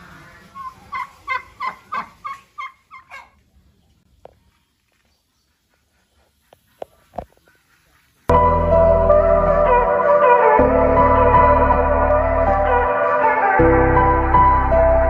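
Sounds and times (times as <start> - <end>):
caged fowl calling: 0.0 - 3.4.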